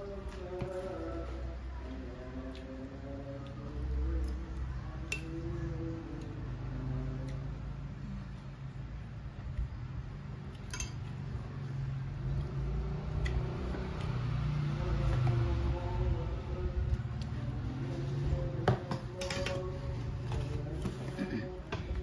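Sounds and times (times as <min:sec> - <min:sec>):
spoons clinking on bowls: 0:05.1 - 0:05.3, 0:10.7 - 0:11.1.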